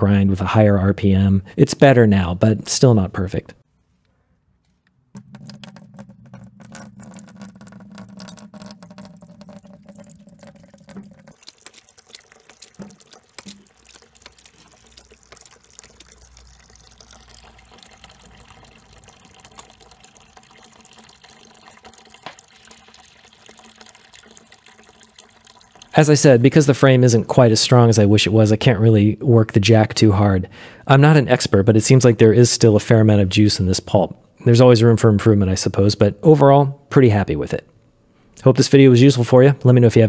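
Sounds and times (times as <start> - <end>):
small drips: 4.6 - 27.4
juice pouring into a plastic bucket: 5.2 - 28.0.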